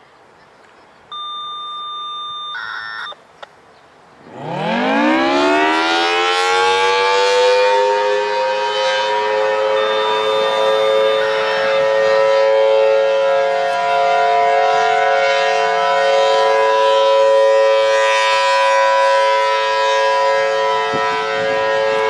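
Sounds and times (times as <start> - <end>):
rotating siren winding up: 1.1 - 3.2, 9.5 - 12.5
steady electronic beep: 1.1 - 3.2, 9.7 - 11.8
short warbling tone: 9.7 - 12.0.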